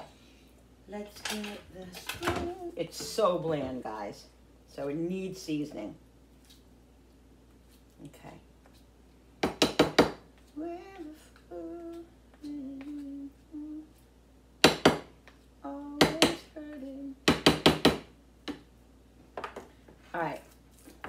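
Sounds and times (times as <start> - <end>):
woman humming: 1.4 - 3.2, 10.5 - 13.9, 15.6 - 17.2.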